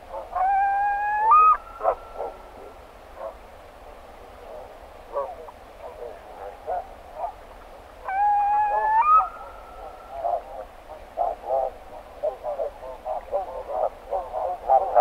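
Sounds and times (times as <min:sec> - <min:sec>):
curlew whistled call: 0:00.1 - 0:02.5, 0:08.0 - 0:10.5
geese yapping calls: 0:00.1 - 0:03.4, 0:04.5 - 0:07.4, 0:08.0 - 0:15.0.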